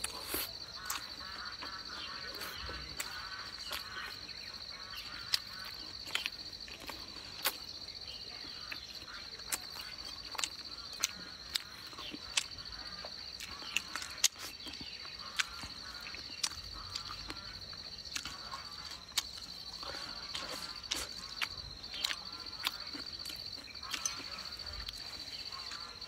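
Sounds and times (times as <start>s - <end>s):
insect trilling: 0.0s - 26.0s
mouth sounds of eating: 0.0s - 26.0s.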